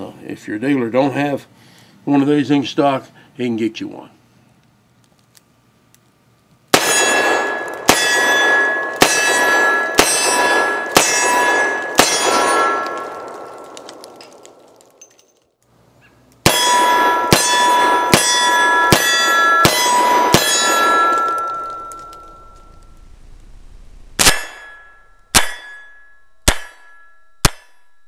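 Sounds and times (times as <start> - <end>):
steel plate ringing: 6.8 - 13.8, 16.4 - 23.0, 24.2 - 28.0.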